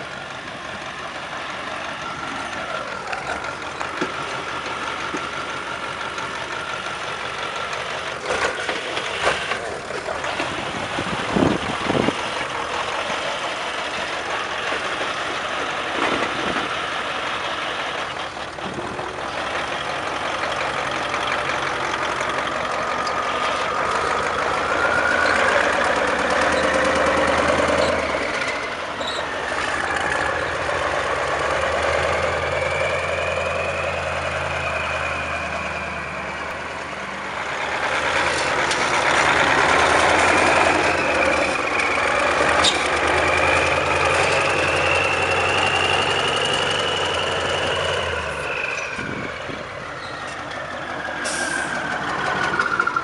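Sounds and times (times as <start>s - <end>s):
diesel engine rumble: 0.0s - 53.0s.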